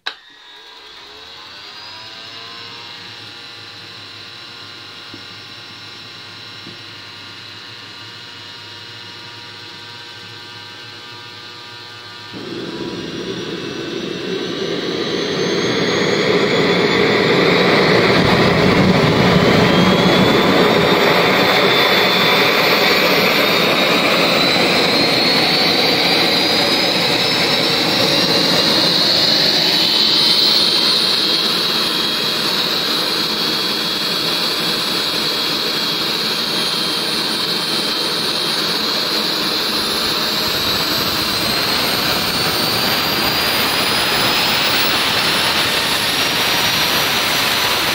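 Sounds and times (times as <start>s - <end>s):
jet engine rushing and whining: 0.0s - 47.9s.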